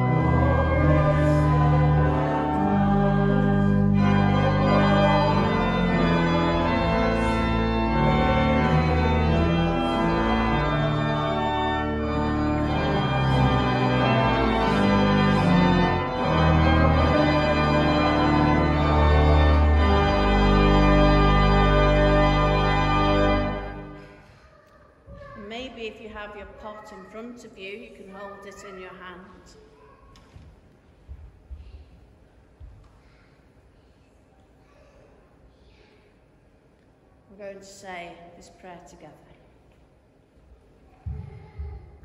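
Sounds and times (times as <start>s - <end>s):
organ playing sustained chords: 0.0s - 24.2s.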